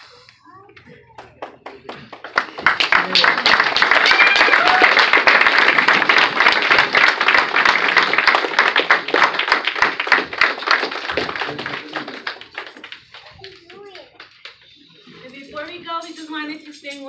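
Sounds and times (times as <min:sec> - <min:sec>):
audience applauding: 0:01.1 - 0:14.8.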